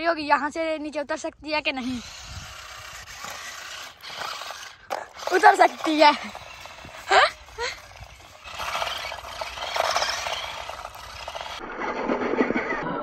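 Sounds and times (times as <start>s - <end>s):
small electric motors: 1.6s - 11.6s
toy car tyres scraping on stones: 1.7s - 11.9s.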